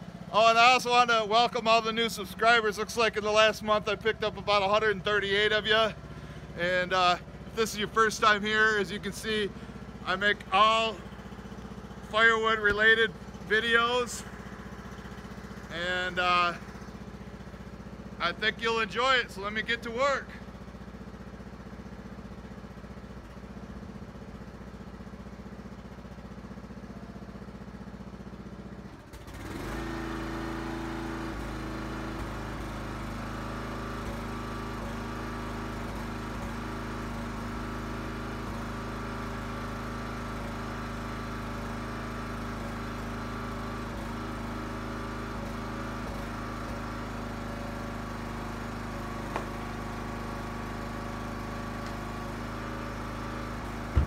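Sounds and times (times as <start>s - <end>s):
gas engine running: 0.0s - 54.0s.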